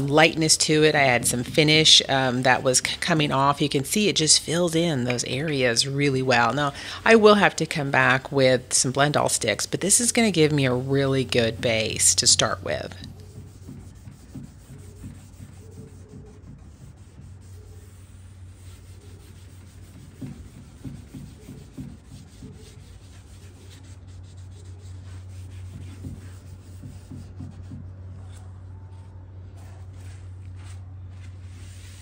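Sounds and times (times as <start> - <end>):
steady low hum: 0.0 - 32.0
cloth rag wiping wood: 9.2 - 32.0.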